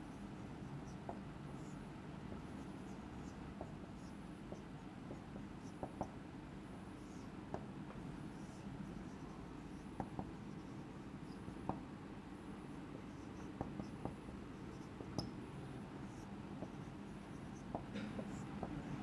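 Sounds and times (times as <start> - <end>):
low room hum: 0.0 - 19.0
marker tip tapping board: 3.2 - 3.8, 4.5 - 6.2, 9.7 - 10.6, 11.3 - 11.9, 13.1 - 15.4, 16.5 - 19.0
marker squeaking on whiteboard: 8.3 - 11.8, 12.7 - 19.0.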